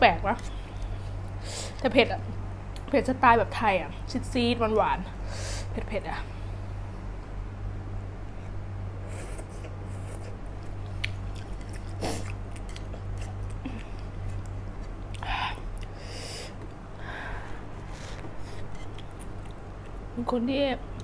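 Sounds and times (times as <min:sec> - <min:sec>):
low steady hum: 0:00.0 - 0:21.0
person chewing and slurping noodles: 0:09.0 - 0:16.8, 0:17.7 - 0:20.0.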